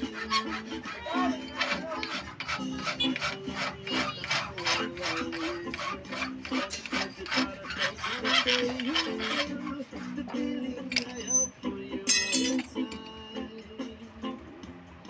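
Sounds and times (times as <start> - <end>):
file rasping on steel: 0.0 - 11.5.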